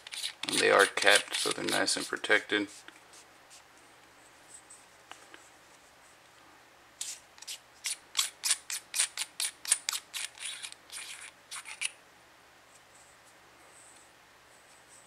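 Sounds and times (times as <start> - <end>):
scope turret cap scratchy rasps: 0.0 - 2.8, 7.0 - 12.0.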